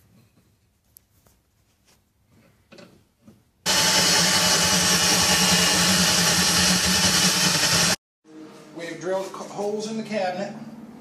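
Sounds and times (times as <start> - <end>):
faint handling sounds: 0.0 - 3.4
cordless drill boring: 3.7 - 8.0.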